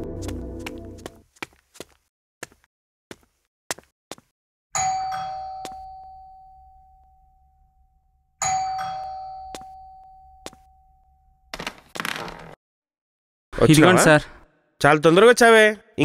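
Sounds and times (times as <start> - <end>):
doorbell chime: 4.8 - 7.7, 8.4 - 11.4.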